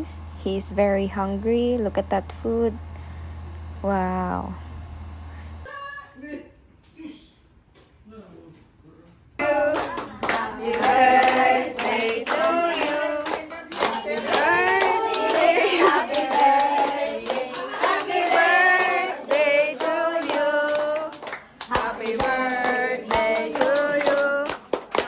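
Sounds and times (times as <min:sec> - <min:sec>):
group of people singing: 0:09.4 - 0:24.7
hands clapping to a beat: 0:09.4 - 0:25.0.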